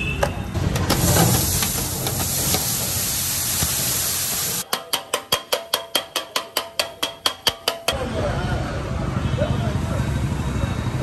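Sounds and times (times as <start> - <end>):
steel tools clacking on griddle: 0.2 - 3.0, 4.6 - 8.0
griddle hissing: 0.6 - 4.7.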